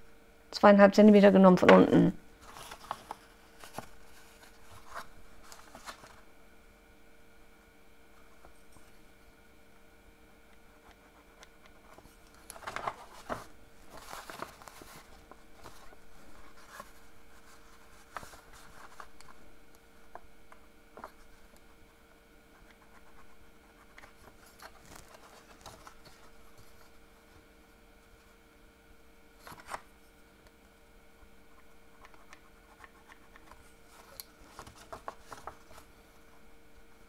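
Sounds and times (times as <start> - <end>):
paper rustling and tapping: 12.4 - 15.8, 32.0 - 35.9.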